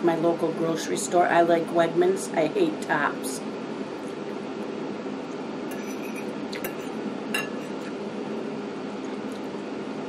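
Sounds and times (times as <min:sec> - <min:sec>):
background hum: 0:00.0 - 0:10.0
fork clinking on ceramic plate: 0:05.7 - 0:07.9.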